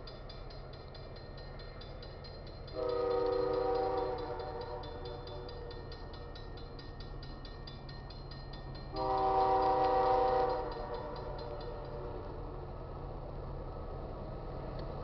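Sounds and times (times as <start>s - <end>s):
railroad crossing bell ringing: 0.0s - 12.6s
locomotive horn chord: 2.7s - 5.4s, 8.9s - 12.4s.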